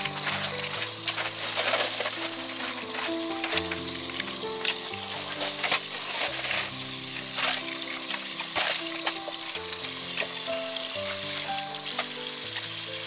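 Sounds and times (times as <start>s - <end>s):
background music of held notes: 0.0s - 13.0s.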